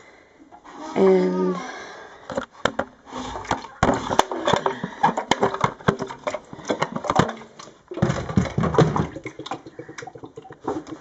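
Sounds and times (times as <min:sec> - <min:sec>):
plastic knocks and rattles: 0:02.3 - 0:11.0.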